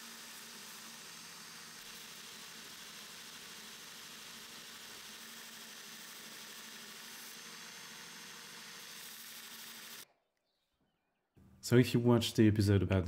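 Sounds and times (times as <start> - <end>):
belt grinder grinding steel: 0.0 - 10.0.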